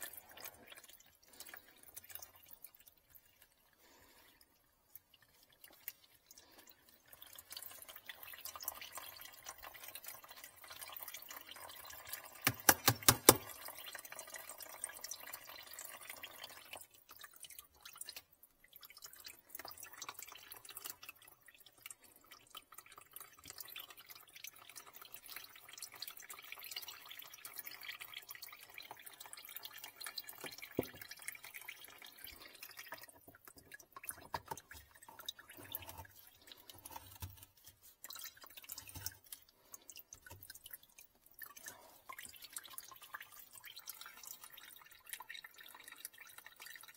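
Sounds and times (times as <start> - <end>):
water trickling into plastic basin: 0.0 - 46.9.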